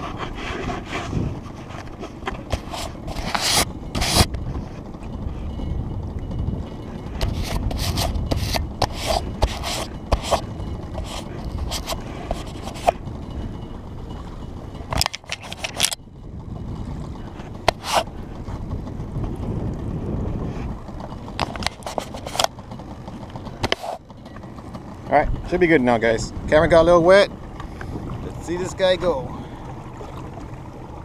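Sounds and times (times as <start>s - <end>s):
rubbing and scraping on camera housing: 0.0s - 4.4s, 7.2s - 13.0s, 14.9s - 16.0s, 17.7s - 18.1s, 21.4s - 22.5s, 23.6s - 24.0s
low rumble: 0.0s - 31.0s
sharp clicks and knocks: 14.9s - 16.0s, 21.3s - 22.6s.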